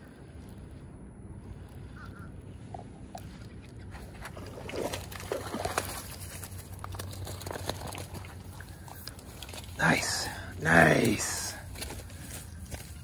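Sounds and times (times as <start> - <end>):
fish splashing in water: 4.0 - 9.7
rustling in grass: 10.6 - 13.0.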